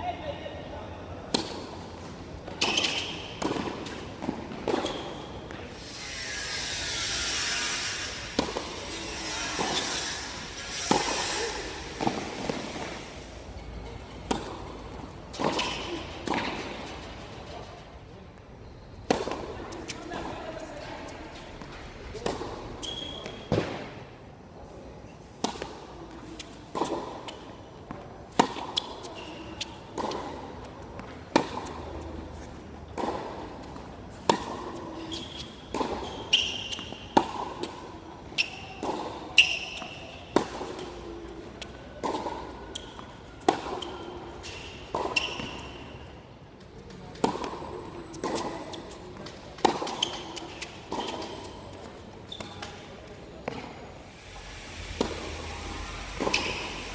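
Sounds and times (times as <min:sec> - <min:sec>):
tennis ball bouncing: 0:01.2 - 0:05.6, 0:08.4 - 0:09.0, 0:10.9 - 0:13.0, 0:14.0 - 0:16.9, 0:19.0 - 0:20.4, 0:21.3 - 0:23.9, 0:25.4 - 0:45.9, 0:46.8 - 0:52.8, 0:55.0 - 0:56.9
racket striking tennis ball: 0:01.3 - 0:05.4, 0:08.2 - 0:13.4, 0:14.0 - 0:17.0, 0:19.0 - 0:20.3, 0:21.3 - 0:24.0, 0:25.4 - 0:45.9, 0:47.1 - 0:52.7, 0:55.0 - 0:56.9.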